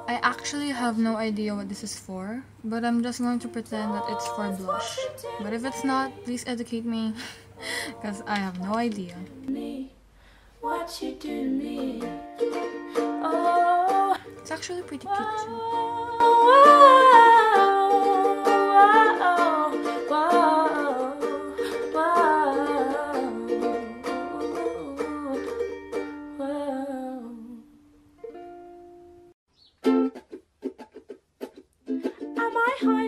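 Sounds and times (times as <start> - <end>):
ukulele song: 0.0 - 1.6, 2.8 - 10.0, 10.6 - 33.0
person singing softly: 3.2 - 6.7, 7.6 - 10.0, 10.6 - 12.2, 13.0 - 14.3, 14.9 - 27.8.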